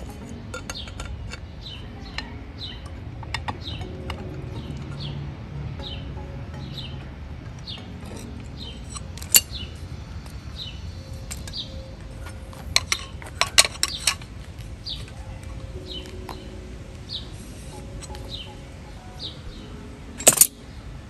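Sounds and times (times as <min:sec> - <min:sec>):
metal clinks of tools: 0:00.0 - 0:02.3, 0:11.1 - 0:14.3, 0:20.2 - 0:20.6.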